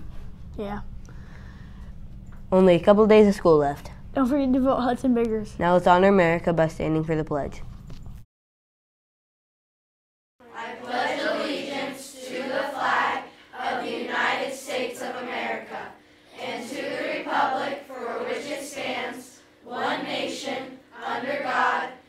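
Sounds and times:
group reciting in unison: 0:10.4 - 0:22.0.

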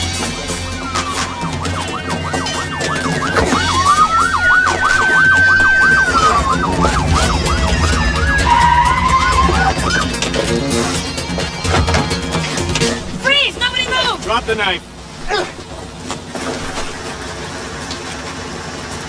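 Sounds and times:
background music: 0:00.0 - 0:14.4
siren wail: 0:00.3 - 0:11.6
police siren yelp: 0:00.4 - 0:11.0.

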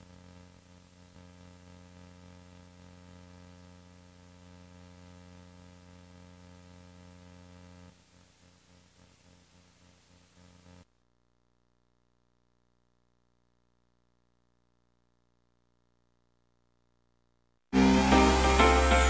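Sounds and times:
light hiss: 0:00.0 - 0:10.9
electrical hum: 0:00.0 - 0:19.0.

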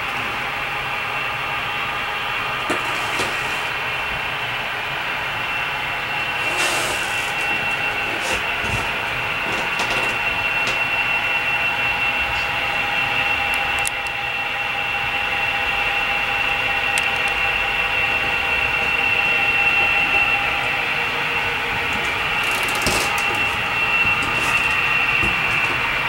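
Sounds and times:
model train high-pitched whine: 0:00.0 - 0:26.0
rushing track noise: 0:00.0 - 0:26.0.

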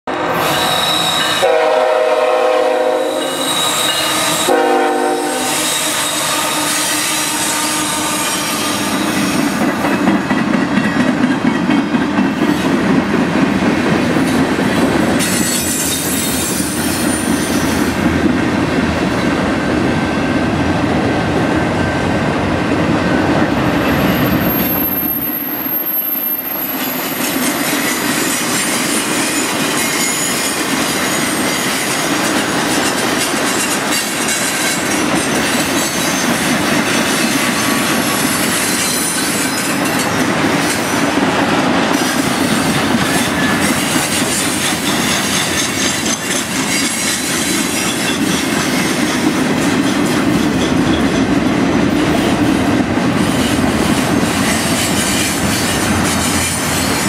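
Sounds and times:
high wheel squeal: 0:00.3 - 0:01.6, 0:03.0 - 0:04.6, 0:23.8 - 0:28.1
locomotive air horn blasts: 0:00.4 - 0:09.1.

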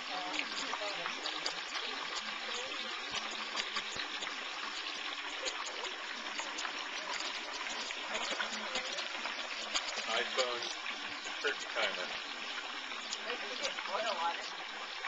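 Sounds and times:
oil sizzling with crackles and pops: 0:00.0 - 0:15.0.

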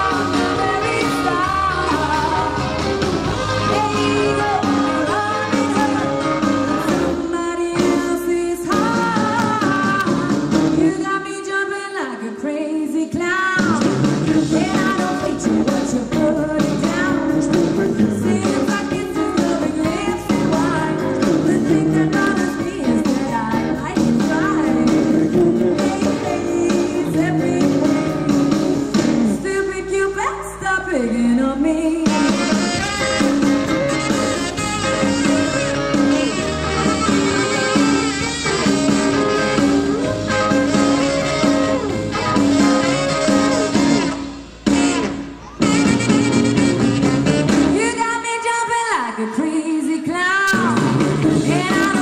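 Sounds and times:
saxophone playing: 0:00.0 - 0:07.4, 0:32.1 - 0:47.9.

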